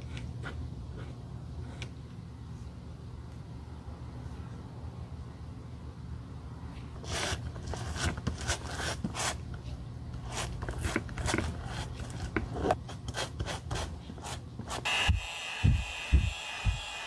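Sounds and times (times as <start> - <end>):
spatula scraping leather sole: 7.0 - 9.4, 10.2 - 14.9.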